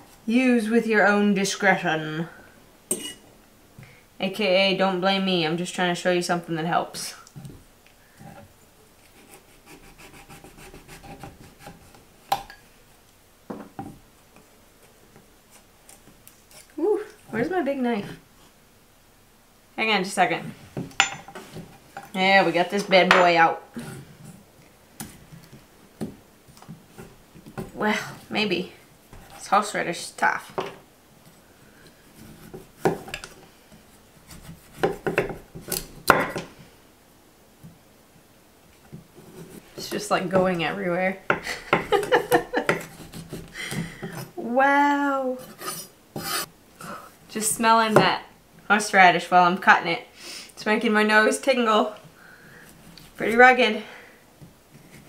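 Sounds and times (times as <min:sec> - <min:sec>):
knife scraping root skin: 0:42.7 - 0:43.5, 0:45.4 - 0:46.5.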